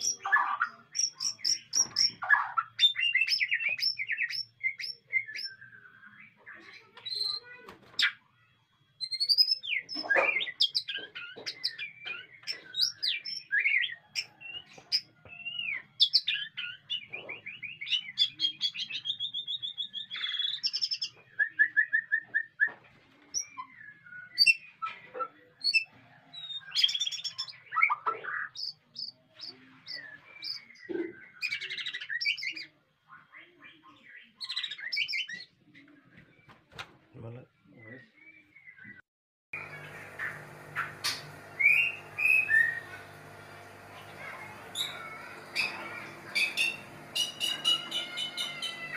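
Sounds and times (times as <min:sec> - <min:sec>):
bird singing whistles and trills: 0:02.8 - 0:06.4, 0:09.0 - 0:14.0.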